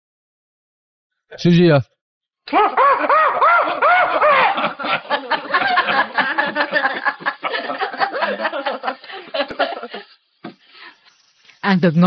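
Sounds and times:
girl laughing: 0:02.5 - 0:10.1.

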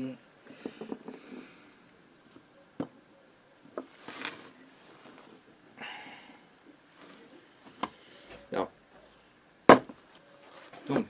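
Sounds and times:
rag rustling: 0:03.8 - 0:05.6, 0:09.9 - 0:11.0.

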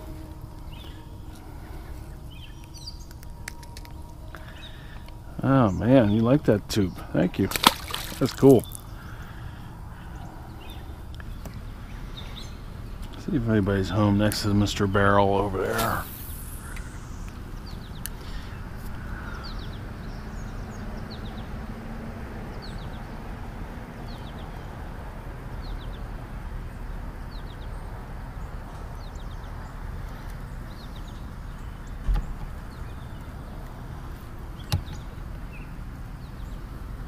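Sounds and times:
steady low hiss: 0:00.0 - 0:22.4.

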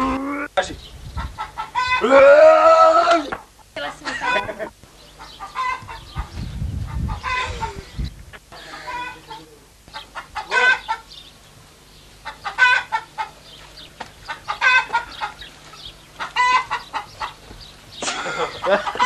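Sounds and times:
chickens clucking: 0:00.0 - 0:02.1, 0:03.3 - 0:11.5, 0:12.1 - 0:19.0
loud chicken call: 0:01.2 - 0:03.4, 0:04.1 - 0:06.2, 0:07.1 - 0:07.9, 0:10.2 - 0:11.1, 0:12.2 - 0:13.4, 0:14.3 - 0:15.5, 0:16.2 - 0:17.4, 0:18.3 - 0:19.0.

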